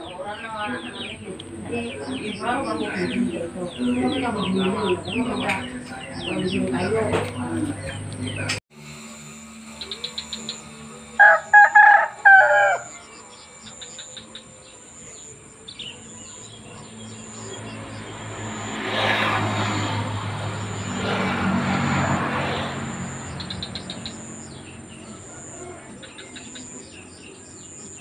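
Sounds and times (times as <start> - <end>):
vehicles passing: 0.0 - 28.0
rooster crowing: 11.2 - 13.2.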